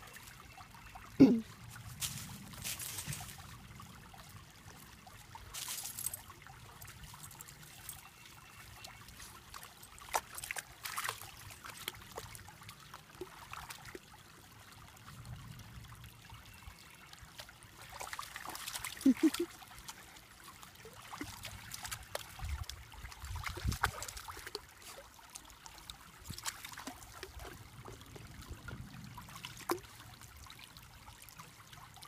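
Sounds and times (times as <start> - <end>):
stream trickling over stones: 0.0 - 32.0
paws splashing in water: 1.6 - 3.6, 8.6 - 14.0, 17.4 - 28.4.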